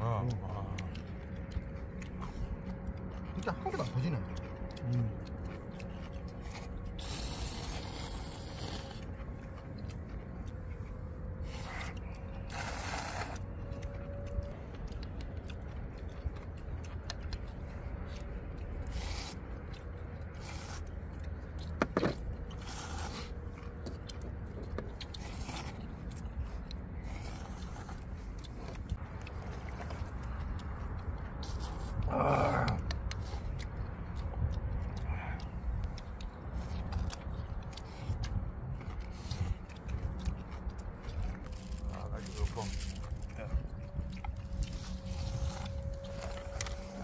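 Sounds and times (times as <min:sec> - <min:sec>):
chewing: 0:00.0 - 0:47.0
low rumble: 0:00.0 - 0:47.0
people slurping noodles: 0:06.4 - 0:09.1, 0:11.4 - 0:13.4, 0:25.1 - 0:25.8, 0:31.4 - 0:33.5.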